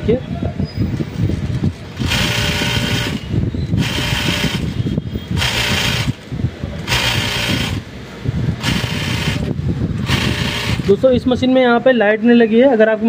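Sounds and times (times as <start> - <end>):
sewing machine whirring: 1.9 - 7.9, 8.6 - 11.0.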